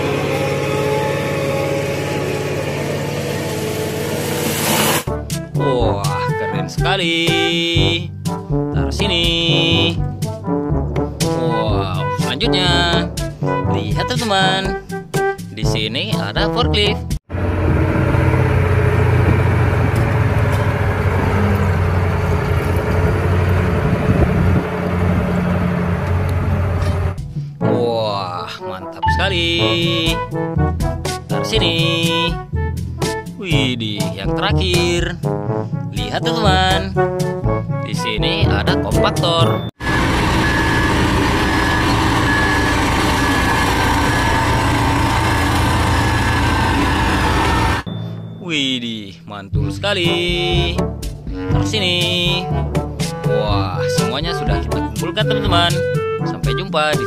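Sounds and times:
loader diesel engine running: 0.0 - 5.1, 17.3 - 27.3, 39.8 - 48.3
repeating electronic beep: 39.6 - 45.4.

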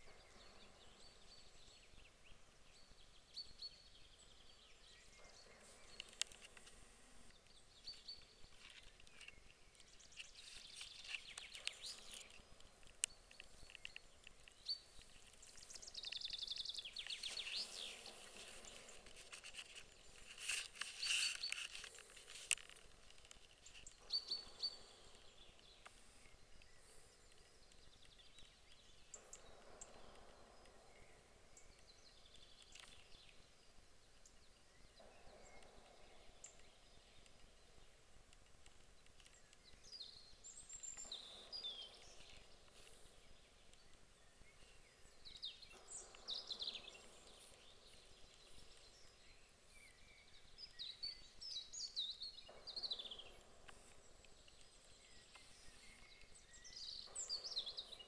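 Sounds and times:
songbird singing: 0.0 - 58.0.

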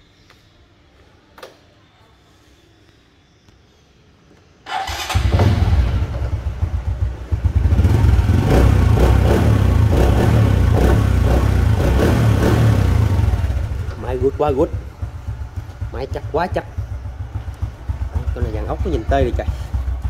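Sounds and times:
motorcycle engine starting and idling: 4.6 - 20.0.

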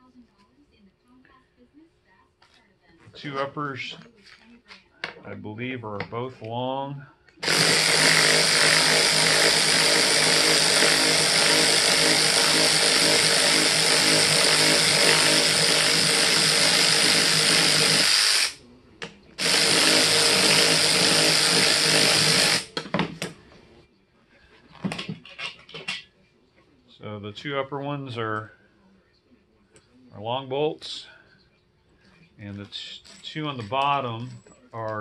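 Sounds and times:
electric ratchet running: 7.4 - 18.6, 19.4 - 22.8
tool handling clicks and knocks: 24.7 - 26.1.

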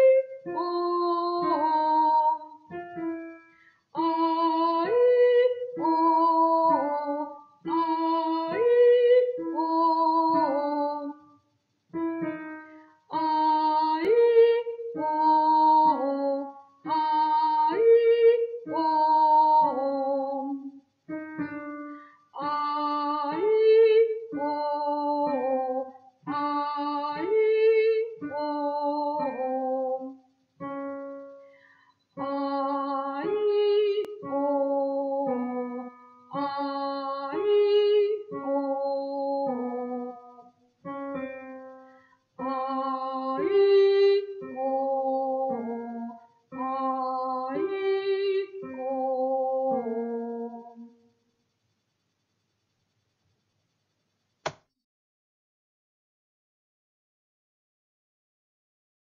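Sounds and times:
woman singing vocal exercise: 0.0 - 2.8, 4.0 - 11.2, 13.1 - 20.7, 22.2 - 30.2, 32.2 - 40.4, 42.4 - 50.9.

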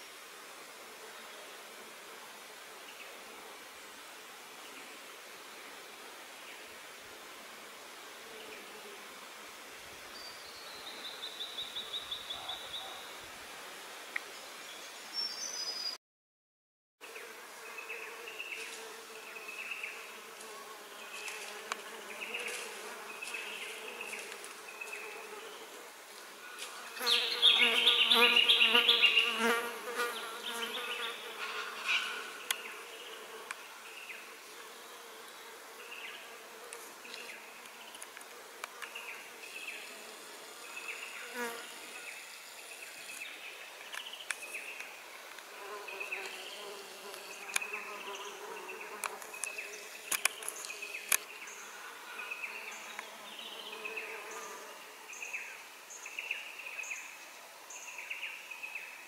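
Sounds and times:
flying insect buzzing: 17.1 - 43.4, 44.4 - 55.3.

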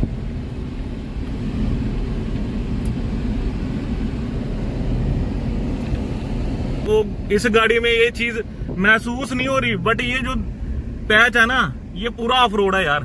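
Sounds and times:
engine and road noise in car: 0.0 - 13.0.

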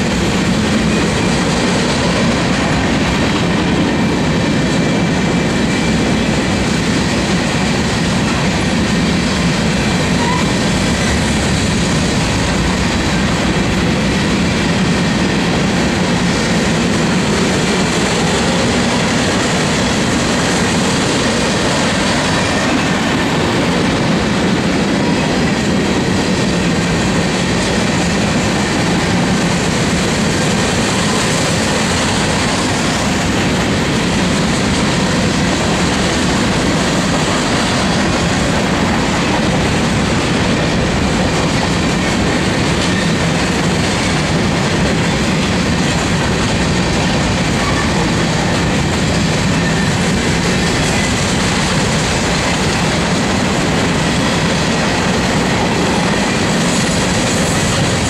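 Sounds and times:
steel wheels rolling on rails: 0.0 - 58.0.

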